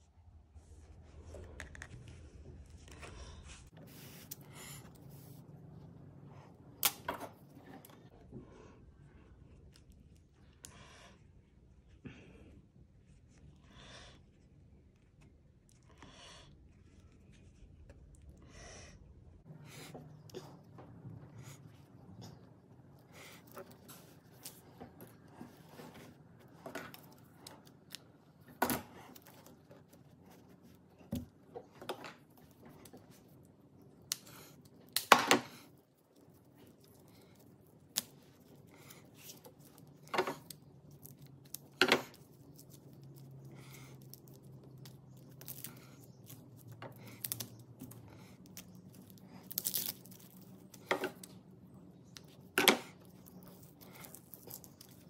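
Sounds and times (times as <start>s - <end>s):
rope rustling: 52.1s - 55.0s.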